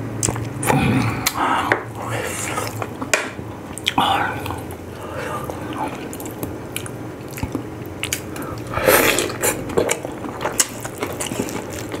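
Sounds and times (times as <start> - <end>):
close-up chewing: 3.7 - 12.0.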